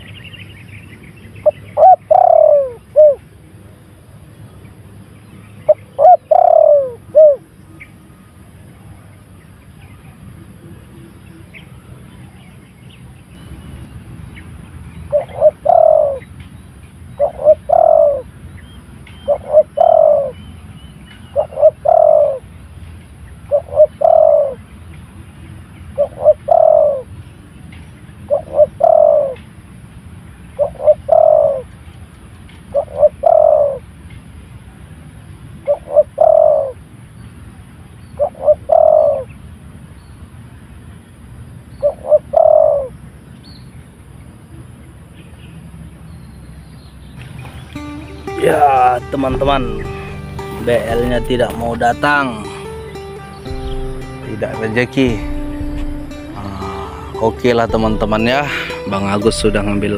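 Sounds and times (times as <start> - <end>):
dove cooing: 1.4 - 3.2, 5.7 - 7.4, 15.1 - 16.2, 17.2 - 18.3, 19.3 - 20.4, 21.4 - 22.4, 23.5 - 24.6, 26.0 - 27.1, 28.3 - 29.4, 30.6 - 31.6, 32.7 - 33.8, 35.7 - 36.8, 38.2 - 39.3, 41.8 - 42.9, 55.2 - 57.6.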